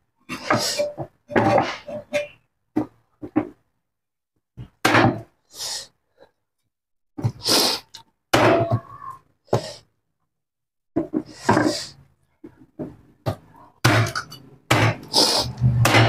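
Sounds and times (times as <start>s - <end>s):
cleaver chopping on wooden board: 13.8s - 15.1s, 15.7s - 16.0s.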